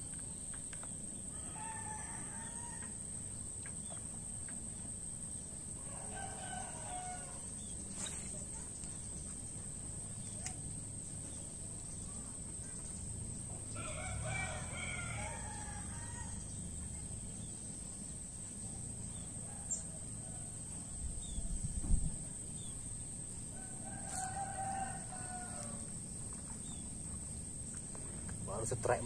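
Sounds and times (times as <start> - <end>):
rooster crowing: 1.3 - 3.2, 5.8 - 7.5, 13.7 - 16.7, 23.5 - 26.0.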